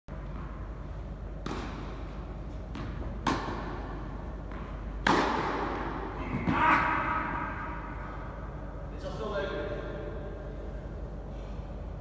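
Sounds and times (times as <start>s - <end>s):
tennis ball hit by racket: 1.4s - 2.0s, 2.7s - 3.8s, 5.0s - 6.6s
tennis ball bouncing: 1.4s - 6.6s.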